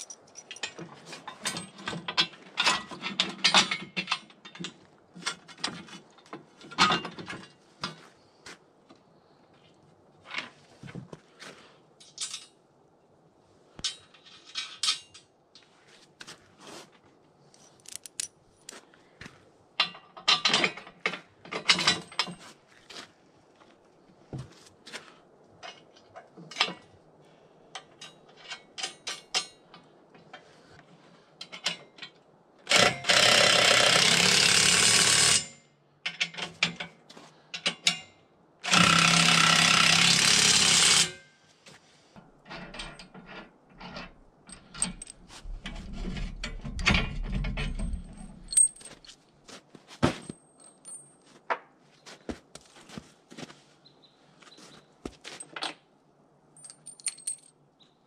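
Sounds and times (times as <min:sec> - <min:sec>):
metal clinks of bolts: 0:00.0 - 0:05.4, 0:12.0 - 0:12.6, 0:13.8 - 0:15.3, 0:17.6 - 0:18.8, 0:42.5 - 0:45.8, 0:46.4 - 0:49.0, 0:50.2 - 0:51.3, 0:56.5 - 0:57.6
cordless drill driving bolts: 0:32.7 - 0:35.4, 0:38.6 - 0:41.1.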